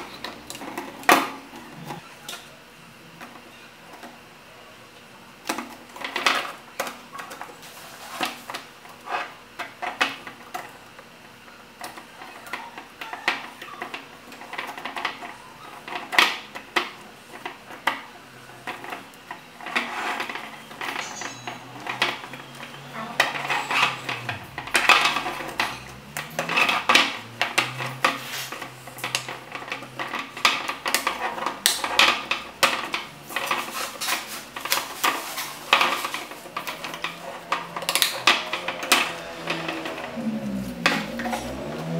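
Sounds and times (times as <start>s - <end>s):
wooden pieces clacking together: 11.8s - 41.9s.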